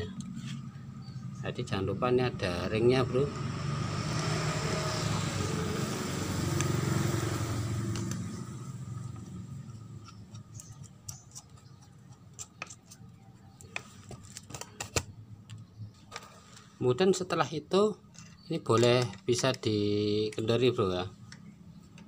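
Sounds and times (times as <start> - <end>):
motor vehicle engine running: 0.0 - 12.4.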